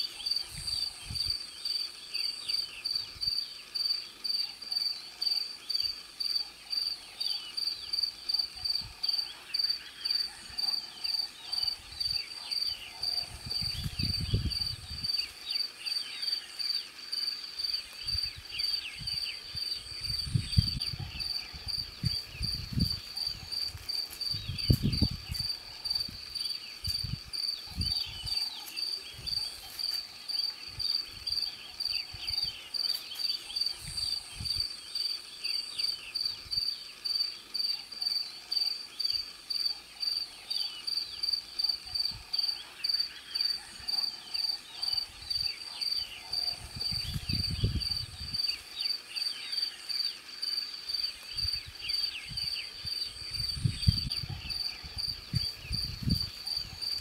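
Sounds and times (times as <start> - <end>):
insect chirping: 0.0 - 57.0.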